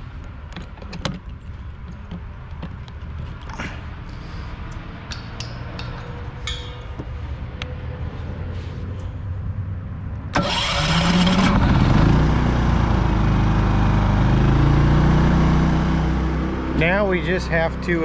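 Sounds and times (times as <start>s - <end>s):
generator starting and running: 10.3s - 18.0s.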